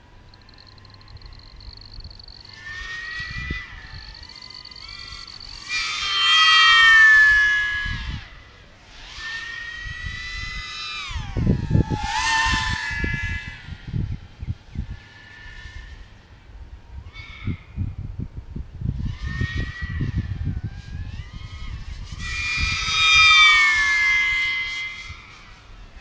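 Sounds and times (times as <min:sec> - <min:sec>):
drone motors whining: 0:00.0 - 0:08.0.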